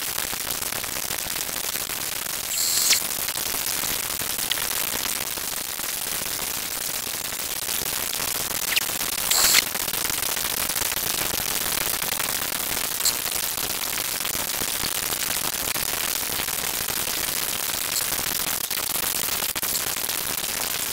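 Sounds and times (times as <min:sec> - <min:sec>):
steady static hiss: 0:01.5 - 0:05.2, 0:06.4 - 0:14.0
brief crackles: 0:02.5 - 0:03.1, 0:08.7 - 0:09.7.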